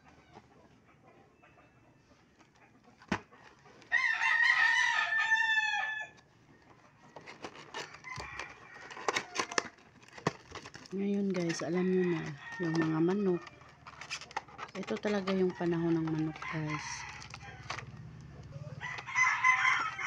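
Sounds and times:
rooster crowing: 0:03.9 - 0:06.2, 0:07.8 - 0:09.6, 0:15.6 - 0:20.0
cardboard box clicking and crinkling: 0:06.7 - 0:20.0.

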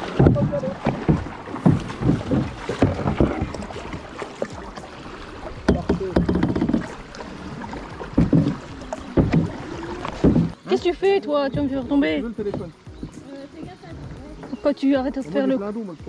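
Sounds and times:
paddles knocking on canoe hull: 0:00.0 - 0:15.6
water splashing: 0:00.0 - 0:16.0.

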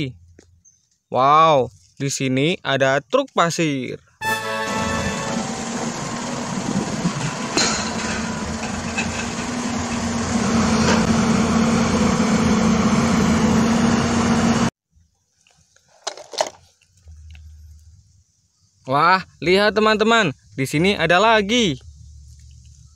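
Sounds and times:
truck diesel engine running: 0:04.2 - 0:14.7.

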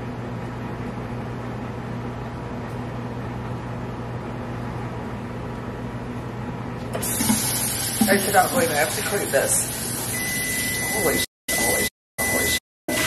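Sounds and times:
microwave oven humming: 0:00.0 - 0:13.0.

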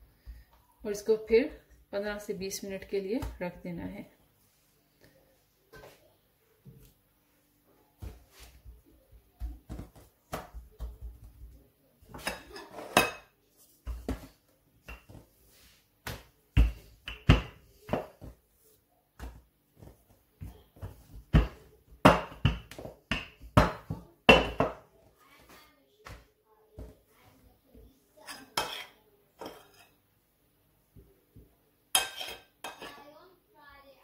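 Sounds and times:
rolling pin rolling dough: 0:08.0 - 0:27.2
rolling pin knocking on counter: 0:20.8 - 0:24.8.

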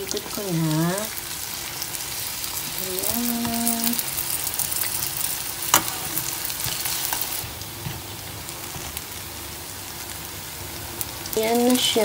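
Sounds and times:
frying in hot oil sizzling: 0:00.0 - 0:12.0
metal tongs clicking on pan: 0:05.7 - 0:06.8.

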